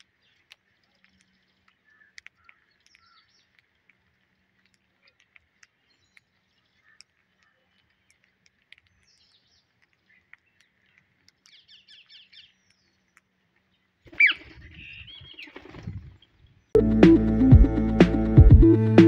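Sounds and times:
parakeet squawk: 14.1s - 15.5s
parakeets chirping: 14.1s - 15.7s
wingbeats: 14.1s - 19.0s.

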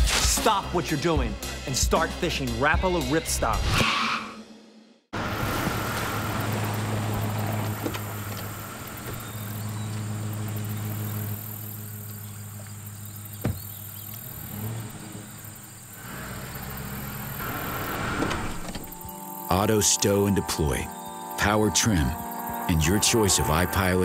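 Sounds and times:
engine idling: 5.4s - 19.3s.

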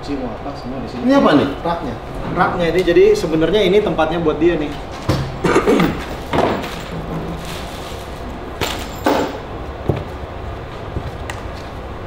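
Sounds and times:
knocks of kitchen items set down: 5.1s - 6.9s.

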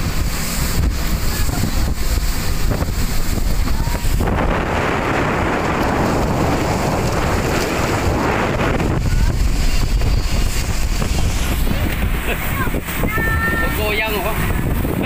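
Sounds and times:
water rushing past hull: 0.0s - 15.0s
wind buffeting microphone: 0.0s - 15.0s.

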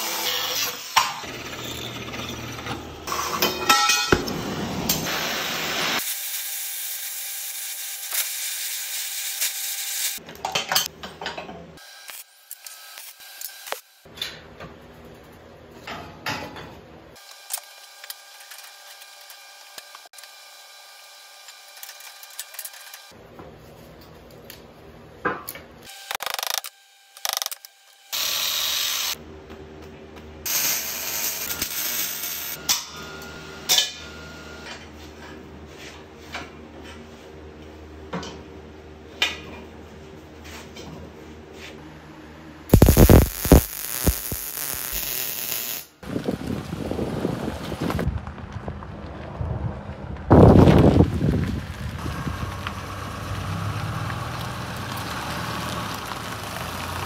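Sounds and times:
angle grinder cutting steel: 0.0s - 2.6s, 42.7s - 45.9s
steady machine whine: 42.7s - 45.9s.

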